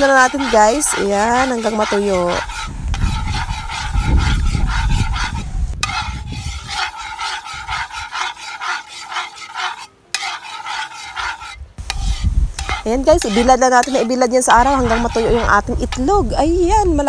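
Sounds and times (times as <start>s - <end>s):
low rumble: 0.0s - 6.6s
metal spatula scraping wok: 0.0s - 17.0s.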